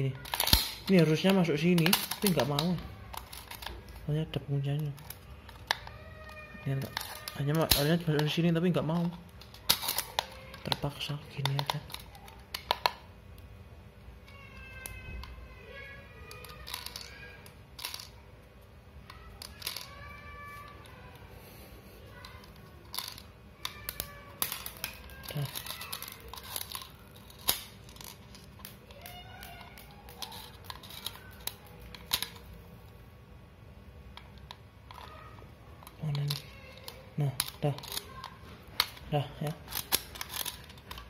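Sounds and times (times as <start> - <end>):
plastic clicks and rattles: 0.2 - 4.1, 4.7 - 13.0, 16.2 - 18.2, 22.1 - 32.6, 34.1 - 41.0.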